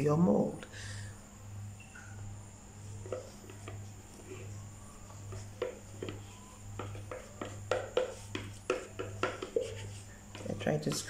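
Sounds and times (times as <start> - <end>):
spatula scraping plastic cup: 3.0 - 11.0.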